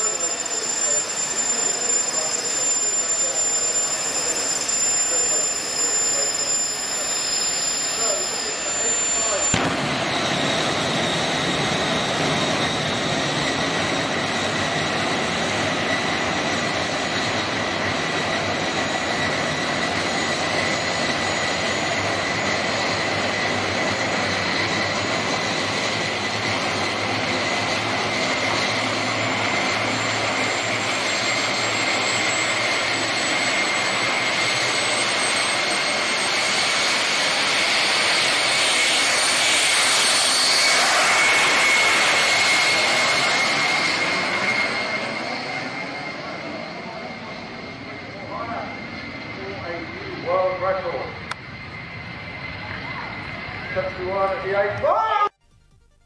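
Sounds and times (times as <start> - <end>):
jet engine whining: 0.0 - 56.0.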